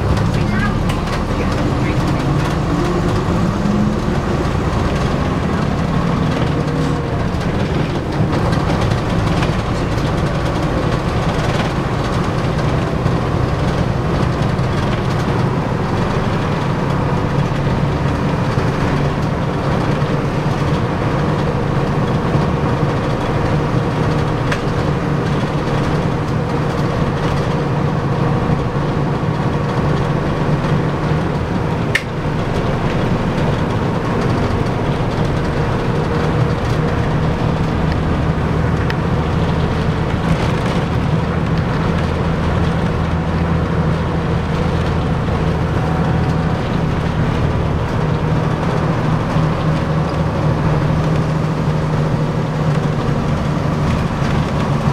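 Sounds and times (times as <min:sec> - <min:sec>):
body rattling: 0:00.0 - 0:28.8
bus engine drone: 0:00.0 - 0:54.9
road noise: 0:00.0 - 0:54.9.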